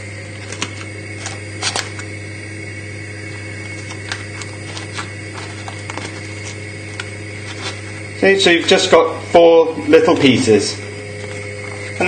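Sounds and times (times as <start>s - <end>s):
background hum: 0.0s - 12.0s
foil crinkling: 0.4s - 2.1s, 3.4s - 8.0s.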